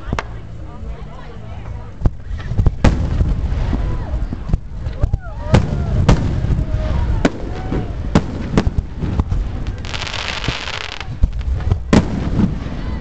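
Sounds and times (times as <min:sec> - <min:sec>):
dense hiss: 0:02.1 - 0:13.0
fireworks bangs: 0:02.4 - 0:04.9, 0:05.5 - 0:13.0.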